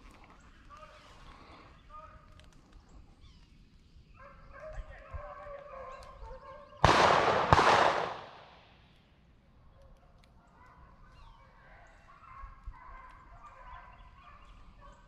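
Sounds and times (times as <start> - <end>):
hunting dogs baying: 4.2 - 6.8, 10.3 - 15.0
gunshots echoing: 6.8 - 8.8.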